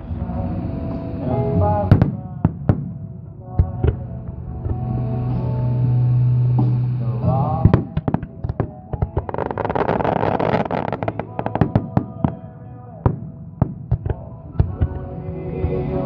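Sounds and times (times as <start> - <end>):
music with held low note: 0.0 - 16.0
fireworks bangs and crackle: 1.8 - 5.1, 7.6 - 15.1.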